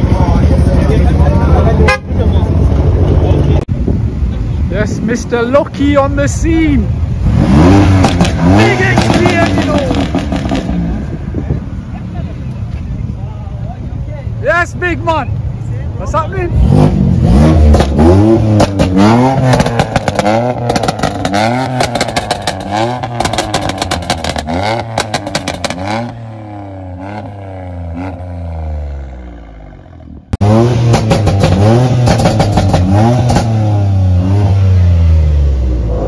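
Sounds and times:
exhaust crackles: 6.2 - 11.1, 16.5 - 36.0
car engine revving hard: 7.2 - 11.0, 16.5 - 29.6, 30.4 - 36.0.

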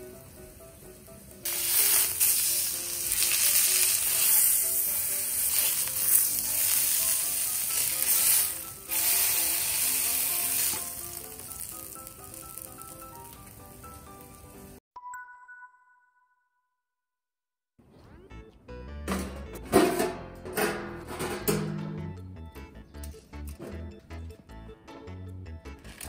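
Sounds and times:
meat sizzling in a frying pan: 1.4 - 14.8.

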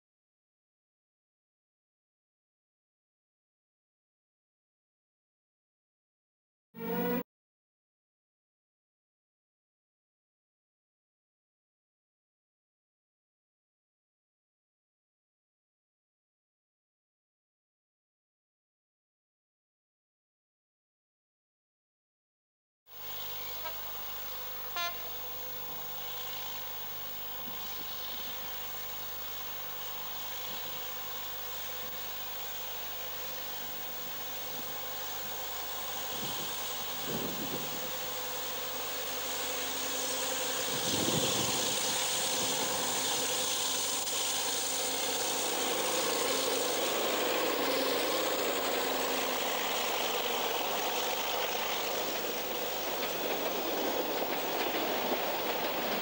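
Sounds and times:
diesel locomotive engine running: 22.9 - 56.0
wagons rolling past: 37.0 - 56.0.

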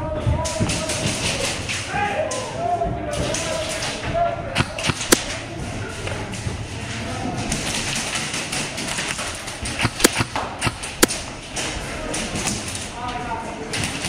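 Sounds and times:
indoor background noise: 0.0 - 14.0
airsoft gun cracks: 4.6 - 5.4, 8.0 - 11.8.

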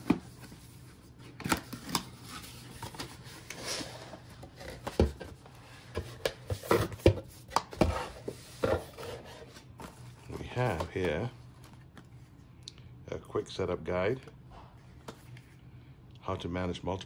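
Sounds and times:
cardboard and paper rustling: 0.0 - 12.3.

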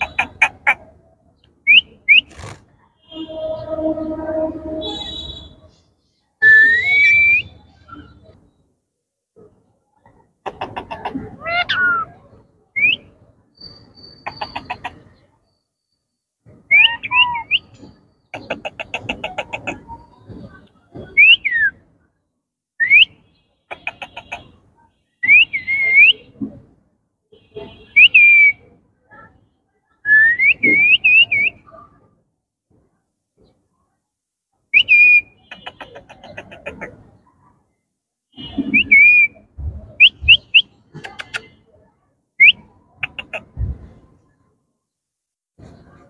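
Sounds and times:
raspy chattering calls: 0.0 - 0.9, 14.1 - 15.1, 18.3 - 19.9, 23.7 - 24.5, 35.2 - 37.0, 43.0 - 43.6.

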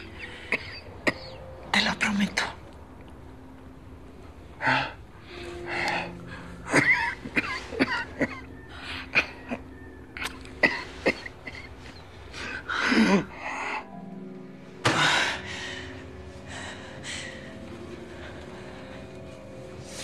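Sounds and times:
woman crying in sobs: 4.6 - 19.0.

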